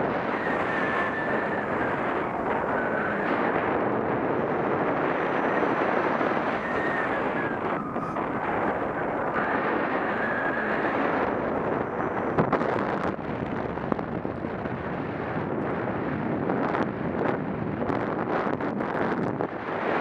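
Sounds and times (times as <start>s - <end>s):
wind buffeting microphone: 0.0s - 20.0s
faint whistle: 6.4s - 10.8s.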